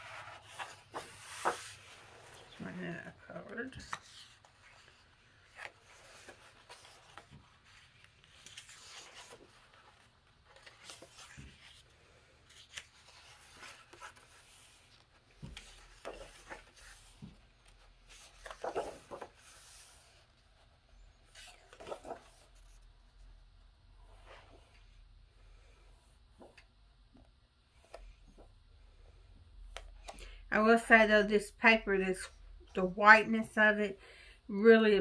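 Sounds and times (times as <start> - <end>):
book pages turning: 0.0 - 2.6, 3.3 - 22.9.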